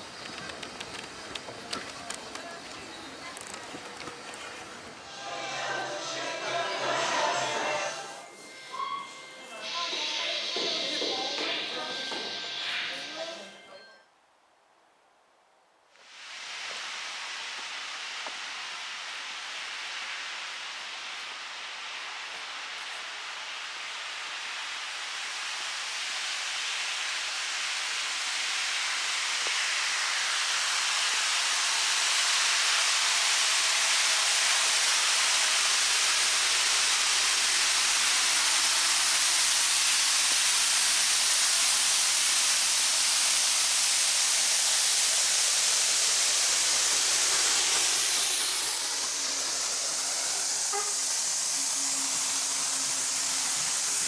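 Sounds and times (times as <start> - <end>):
carriages rolling with low hum: 0.0 - 7.1
steam locomotive hissing: 0.0 - 13.5, 16.0 - 54.0.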